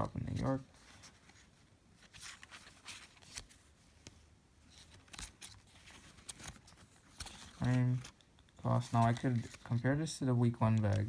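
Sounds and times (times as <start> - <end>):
cardboard tags rustling: 4.7 - 11.0.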